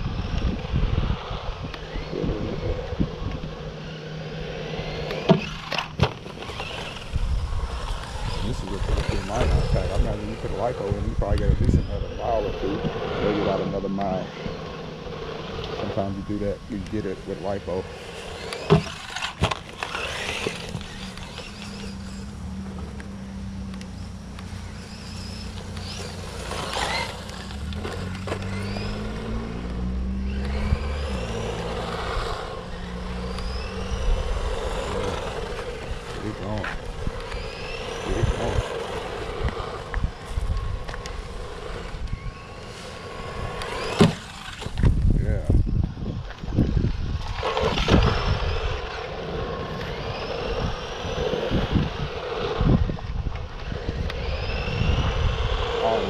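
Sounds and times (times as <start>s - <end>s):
wind rumble on microphone: 0.0s - 5.7s, 6.3s - 23.8s, 24.4s - 56.0s
electric motor whining: 0.0s - 56.0s
low hum: 0.0s - 56.0s.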